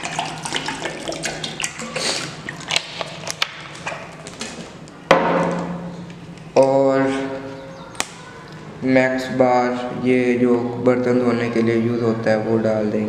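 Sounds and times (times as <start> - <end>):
water pouring into metal bowl: 0.0 - 3.3
water dripping: 0.0 - 4.5
sharp knock: 5.1 - 6.0.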